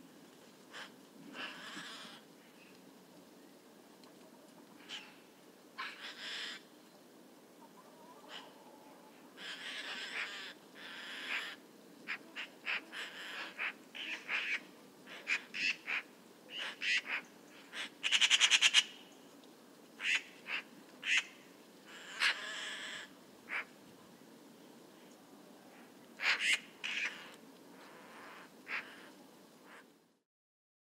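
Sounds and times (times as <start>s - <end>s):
magpies calling: 0.7s - 2.3s, 4.8s - 5.2s, 5.8s - 6.7s, 9.3s - 19.2s, 20.0s - 23.8s, 26.2s - 29.9s.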